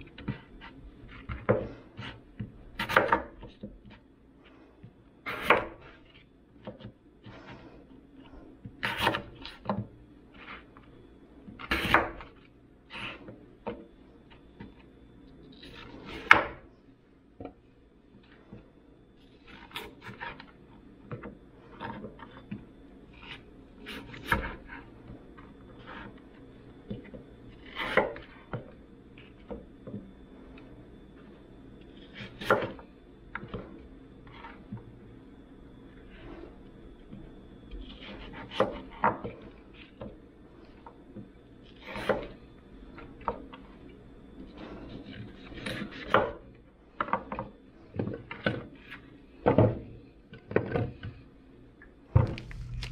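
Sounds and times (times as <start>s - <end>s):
knocks and clatters of objects: 52.1s - 52.9s.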